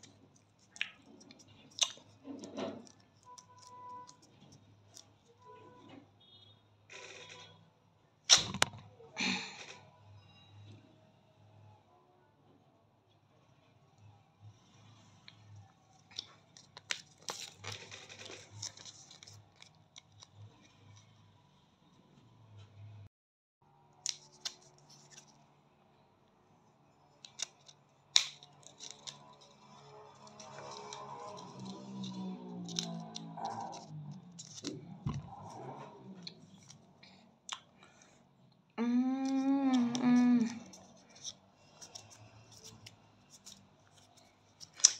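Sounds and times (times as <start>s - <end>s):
person humming: 38.8s - 40.7s
wax strip crackling: 39.8s - 44.9s
wax strip peeling apart: 44.6s - 44.9s.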